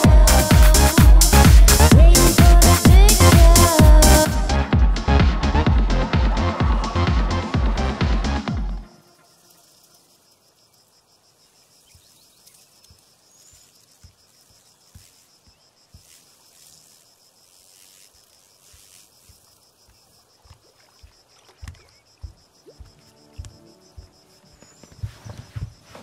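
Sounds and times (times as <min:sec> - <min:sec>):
insects chirring: 0:08.8 - 0:26.0
soft low thumps: 0:20.4 - 0:26.0.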